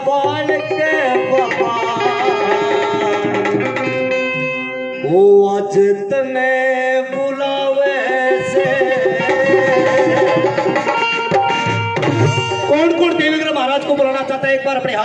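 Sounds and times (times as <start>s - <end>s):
man singing into a microphone: 0.0s - 3.8s, 4.5s - 11.1s
instrumental accompaniment: 0.0s - 6.0s, 7.1s - 15.0s.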